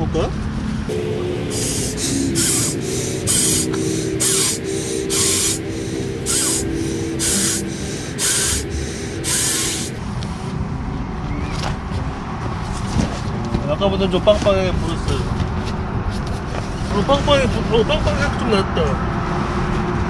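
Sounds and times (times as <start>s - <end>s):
hissy breaths blowing into valve: 1.5s - 10.0s.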